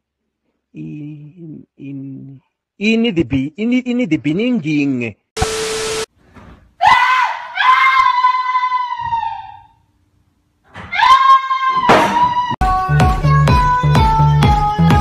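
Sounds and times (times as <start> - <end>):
person screaming: 6.8 - 9.7, 10.9 - 12.6.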